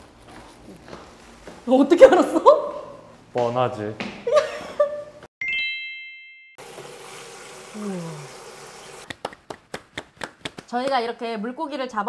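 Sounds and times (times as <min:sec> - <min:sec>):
bright electronic chime: 0:05.4 - 0:06.6
hand claps: 0:09.0 - 0:11.1.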